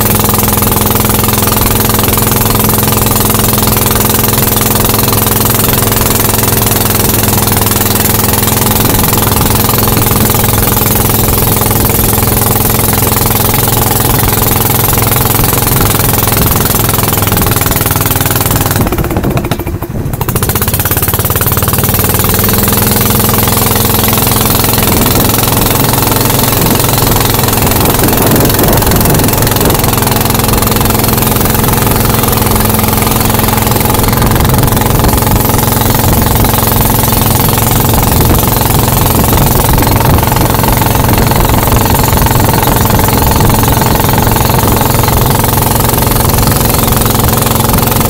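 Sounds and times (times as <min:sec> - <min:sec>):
boat engine rattling drone: 0:00.0 - 0:48.0
wind: 0:00.0 - 0:48.0
water rushing: 0:21.0 - 0:48.0.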